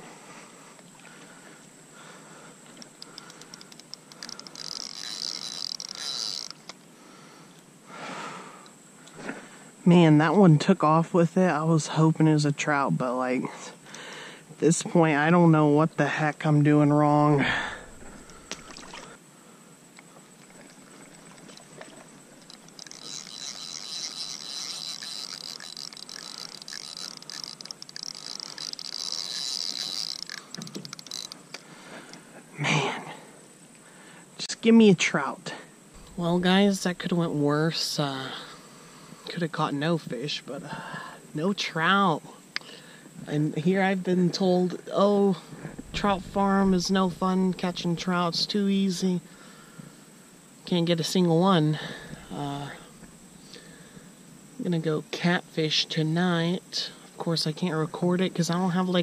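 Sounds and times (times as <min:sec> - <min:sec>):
fishing reel whirring and clicking: 0:02.7 - 0:06.8, 0:20.4 - 0:31.7, 0:36.0 - 0:37.2
soft rush: 0:36.0 - 0:37.7, 0:45.0 - 0:50.0.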